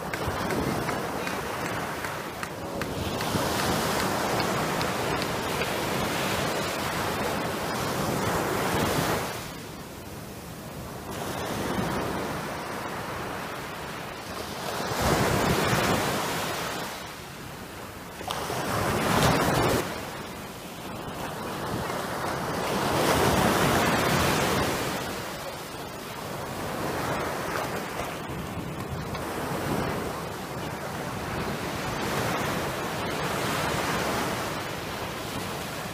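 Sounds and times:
small waves washing up beach: 0.0 - 35.9.

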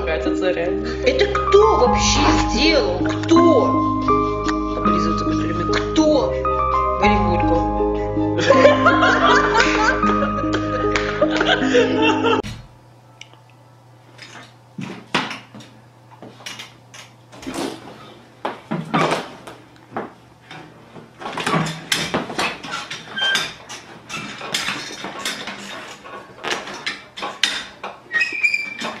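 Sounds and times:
music: 0.0 - 12.5
office chair knocking and clattering: 17.4 - 28.0.

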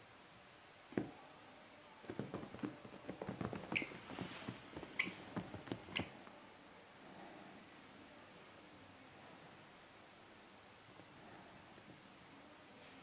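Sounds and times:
knock: 2.1 - 3.9
bird feet scrabbling on cloth: 2.1 - 6.1.

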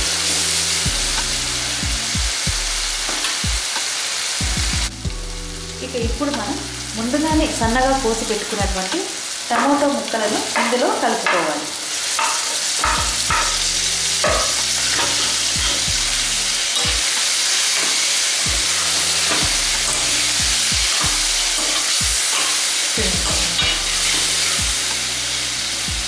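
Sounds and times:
tomatoes sizzling in hot oil: 0.0 - 26.0
metal spoon scraping pan: 12.1 - 15.9, 18.7 - 22.7.

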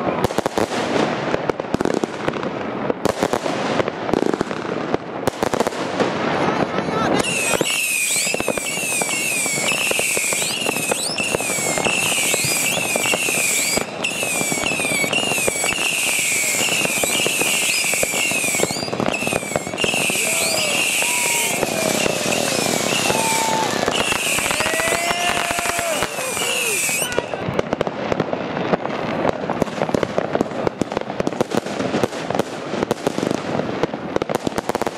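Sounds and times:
fireworks crackling and popping: 0.0 - 34.9
whistling firework shots: 7.1 - 34.9.

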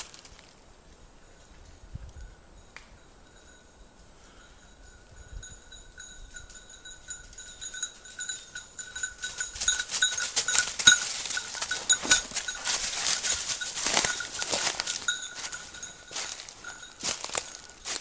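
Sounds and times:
dry leaves rustling and crunching: 0.0 - 0.6, 9.2 - 18.0
dog collar bell jingling: 2.6 - 18.0.

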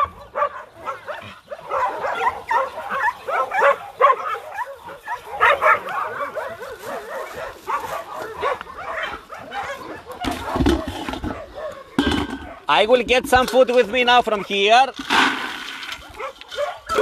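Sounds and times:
dogs barking and yelping: 0.0 - 12.9, 14.0 - 14.8, 15.9 - 17.0.

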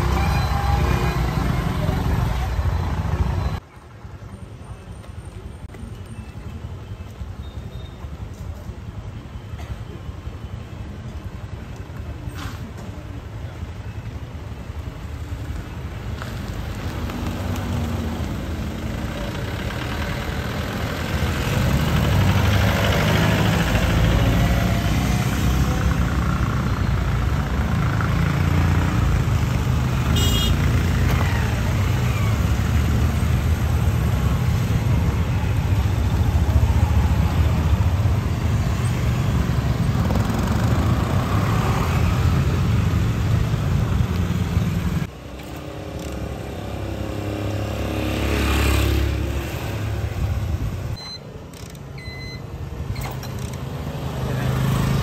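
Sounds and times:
street traffic rumble: 0.0 - 55.0
motorcycles and scooters passing: 16.2 - 51.0, 53.3 - 55.0.

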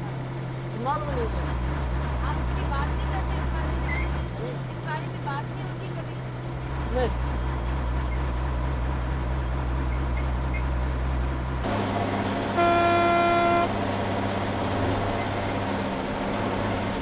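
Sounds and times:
truck engine droning: 0.0 - 17.0
vehicle driving along road: 0.0 - 17.0
vehicle horn: 12.0 - 13.8.

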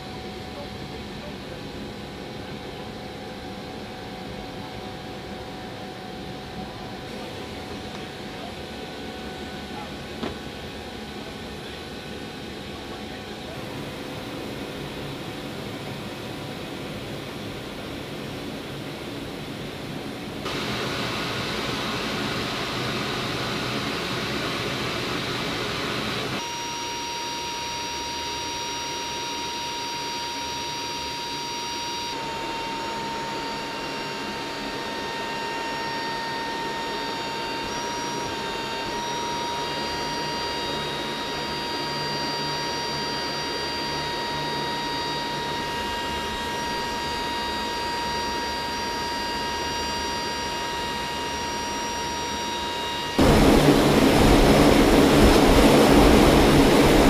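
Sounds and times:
high-pitched turbine whine: 0.0 - 57.0
aircraft engine rushing noise: 50.9 - 57.0.

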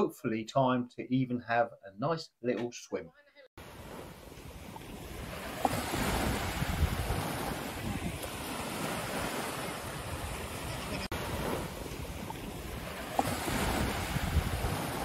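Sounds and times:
waves washing up beach: 3.6 - 15.0
wind rumbling on microphone: 3.7 - 15.0.

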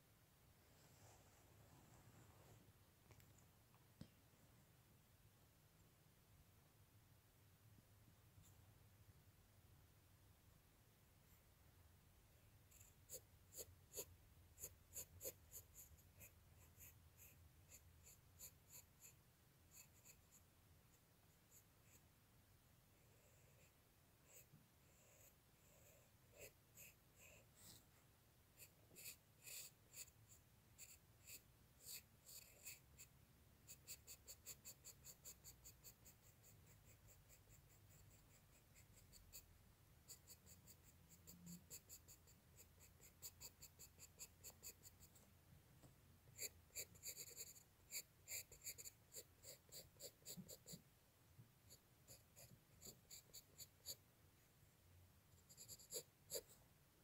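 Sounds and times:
pencil scratching on paper: 12.7 - 22.1, 23.2 - 28.0, 28.6 - 45.2, 46.3 - 50.8, 51.7 - 54.0, 55.3 - 56.6.

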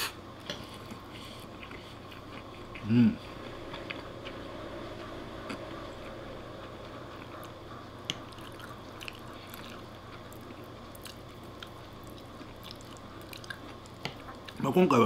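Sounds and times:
man chewing: 0.0 - 14.6.

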